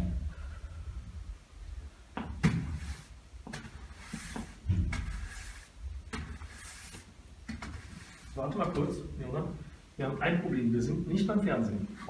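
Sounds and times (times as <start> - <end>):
broom sweeping swish: 2.5 - 8.4.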